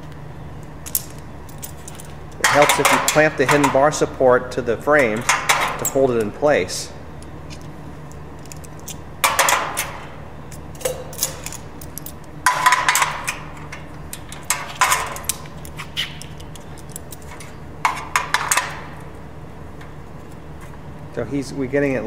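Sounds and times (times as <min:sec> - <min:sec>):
metal studs clanking and rattling: 0:00.9 - 0:04.0, 0:05.0 - 0:06.3, 0:09.2 - 0:10.0, 0:10.8 - 0:15.4.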